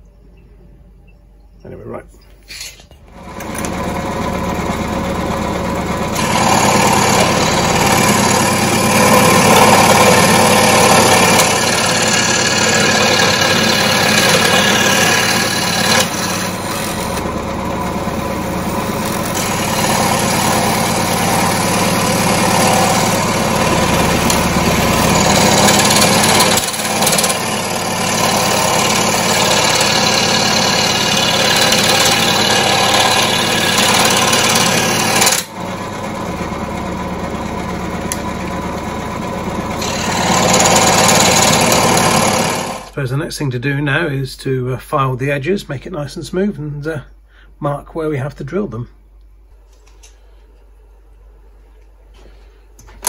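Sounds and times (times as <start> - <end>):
scroll saw cutting metal: 2.5 - 4.0, 6.1 - 35.6, 39.8 - 43.0.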